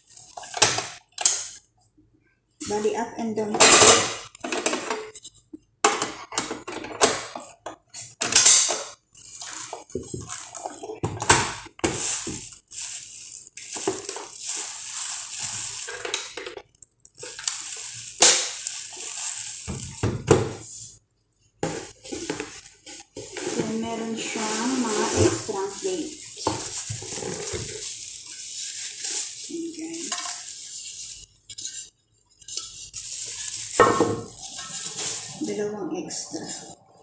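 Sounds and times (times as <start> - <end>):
plastic wrapping crinkling: 0.0 - 1.6, 8.9 - 21.0, 21.6 - 36.8.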